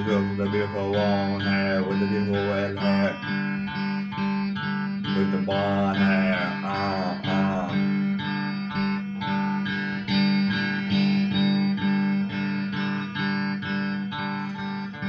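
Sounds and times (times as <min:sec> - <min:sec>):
person singing: 0:00.0 - 0:04.2, 0:05.0 - 0:08.2
electric guitar strumming chords: 0:00.0 - 0:15.0.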